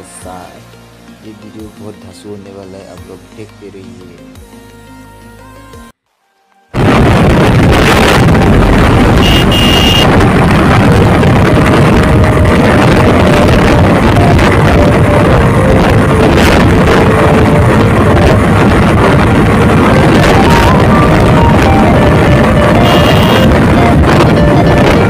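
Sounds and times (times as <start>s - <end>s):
wind buffeting microphone: 6.8s - 25.0s.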